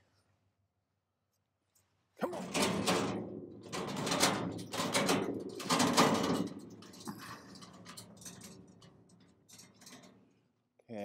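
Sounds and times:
metal cart casters rattling on concrete: 0:02.3 - 0:10.4.

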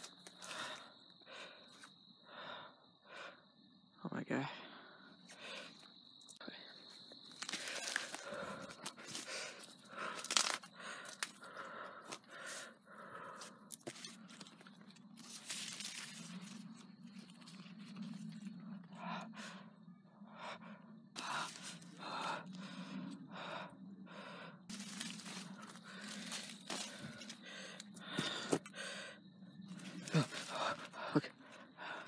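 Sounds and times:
person breathing hard: 0:00.0 - 0:03.6, 0:04.6 - 0:14.4, 0:18.8 - 0:32.0
dry cornstalks rustling: 0:07.2 - 0:11.4, 0:13.8 - 0:18.4, 0:24.7 - 0:27.5, 0:29.8 - 0:30.8.

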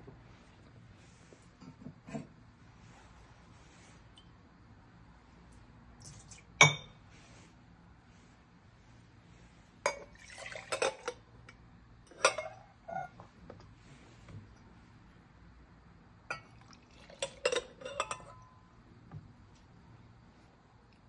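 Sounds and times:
coffee pouring into a jug: 0:06.0 - 0:06.6, 0:10.0 - 0:11.3, 0:16.4 - 0:18.3
glassware and cups clinking: 0:06.6 - 0:07.0, 0:09.9 - 0:11.2, 0:12.1 - 0:13.2, 0:16.3 - 0:18.6.

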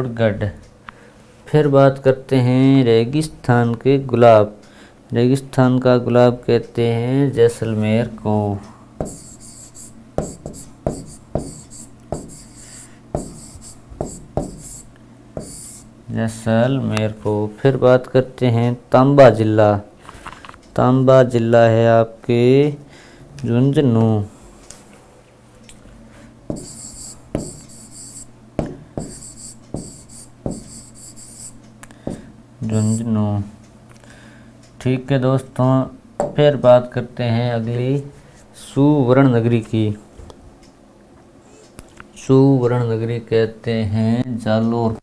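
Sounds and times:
stylus tapping on tablet screen: 0:09.0 - 0:12.5, 0:13.2 - 0:14.8, 0:26.5 - 0:28.0
stylus scratching on screen: 0:09.0 - 0:15.9, 0:26.5 - 0:28.3, 0:29.0 - 0:31.6.

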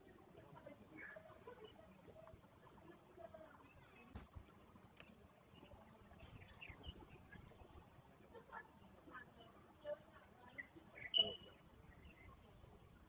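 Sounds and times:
faint click: 0:04.1 - 0:05.2.

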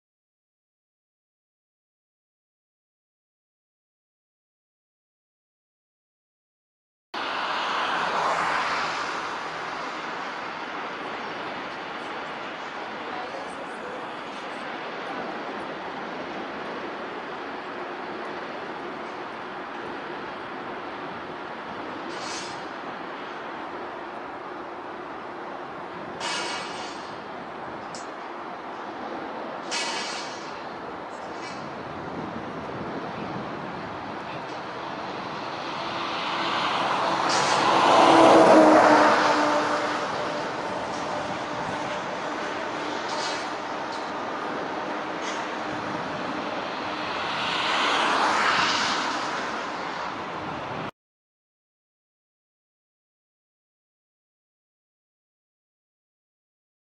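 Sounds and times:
road traffic hiss: 0:07.2 - 0:50.9
vehicle passing close: 0:34.4 - 0:50.9.

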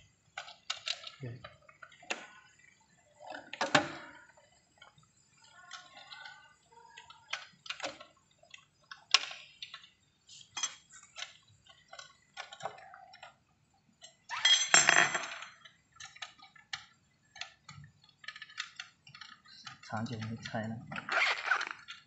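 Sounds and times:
metal tools clinking: 0:14.3 - 0:15.6.

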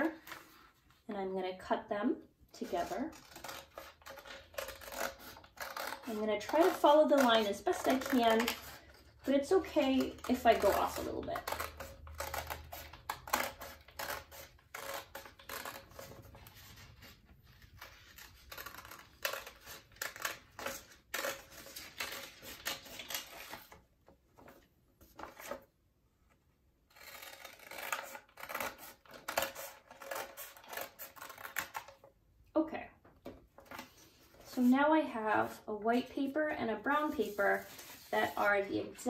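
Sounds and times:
scissors snipping paper: 0:02.6 - 0:23.8, 0:26.9 - 0:32.0.

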